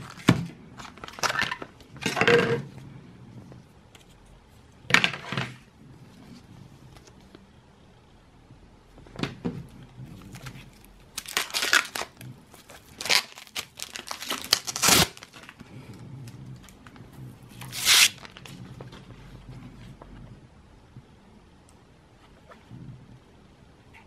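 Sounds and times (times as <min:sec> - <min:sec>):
plastic film crinkling and ripping: 0:10.2 - 0:15.6, 0:17.5 - 0:18.6.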